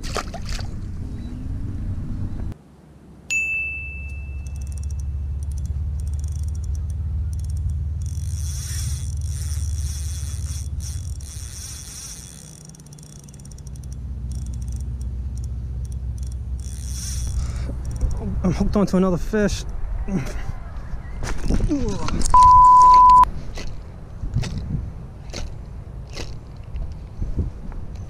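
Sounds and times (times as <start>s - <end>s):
low wind rumble on microphone: 16.4s - 22.4s, 23.3s - 28.0s.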